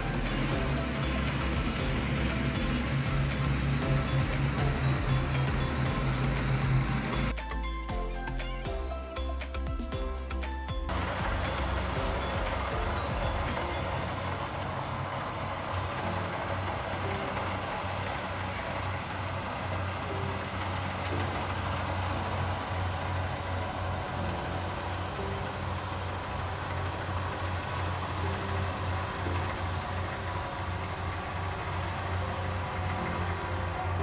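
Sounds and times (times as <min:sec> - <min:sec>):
combine harvester engine droning: 0:00.0 - 0:34.0.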